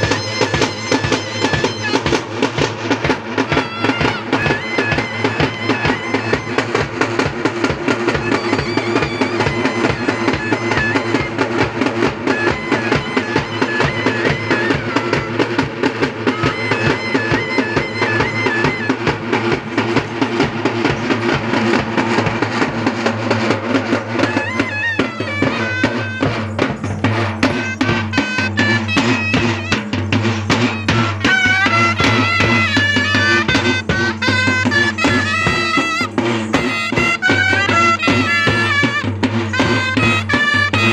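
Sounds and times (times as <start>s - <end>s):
fast dense drumming: 0.0s - 40.9s
shrill reed pipe melody: 0.0s - 40.9s.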